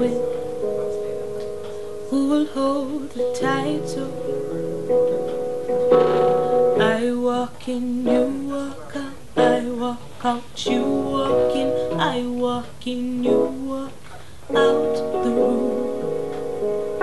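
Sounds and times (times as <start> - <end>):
person singing: 0.0 - 0.4, 2.1 - 4.6, 6.5 - 16.2.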